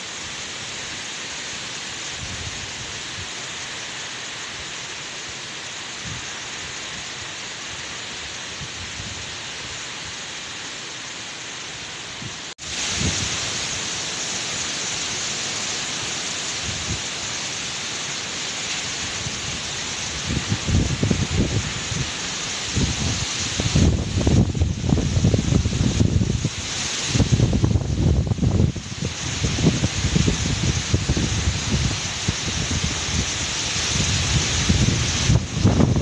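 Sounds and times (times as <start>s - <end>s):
strong wind through palm trees: 0.0s - 36.0s
wind buffeting microphone: 12.2s - 13.5s, 19.1s - 36.0s.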